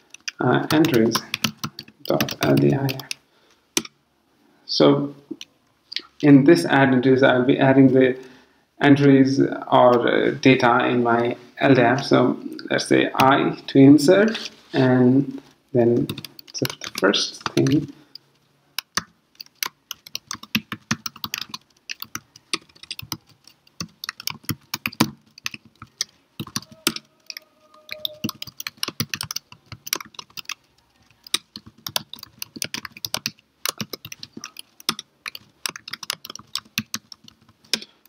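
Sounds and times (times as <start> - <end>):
computer keyboard typing: 0.0 - 3.2, 16.0 - 18.2, 18.8 - 38.0.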